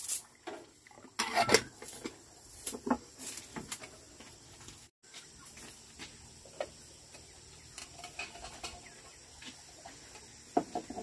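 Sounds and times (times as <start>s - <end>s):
bird calls: 5.1s - 10.9s.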